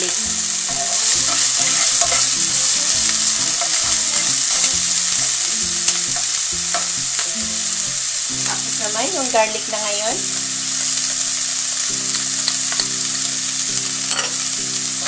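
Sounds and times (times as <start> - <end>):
spatula stirring in pan: 0.0 - 8.8
onion sizzling in hot oil: 0.0 - 15.0.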